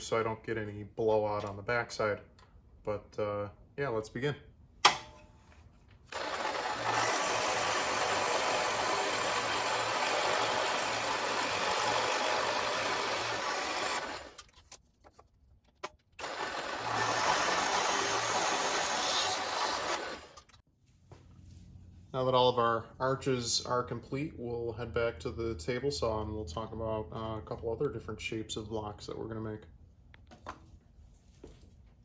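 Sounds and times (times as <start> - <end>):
drill press boring into wood: 6.1 - 14.4, 16.2 - 20.6.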